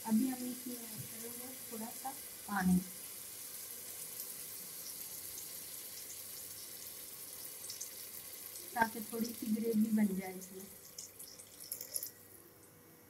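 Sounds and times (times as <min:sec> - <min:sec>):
food sizzling in a pot: 0:00.0 - 0:13.0
water poured into hot pot: 0:01.1 - 0:12.4.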